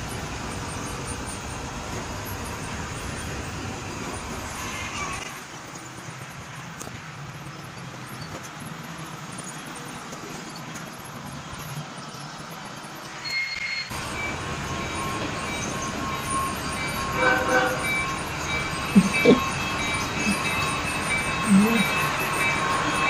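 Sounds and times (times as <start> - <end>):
model train moving on track: 0.0 - 23.0.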